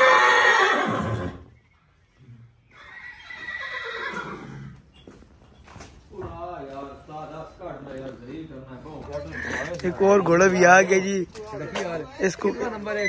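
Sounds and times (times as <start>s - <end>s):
horse whinnying: 0.0s - 1.6s, 2.7s - 5.0s.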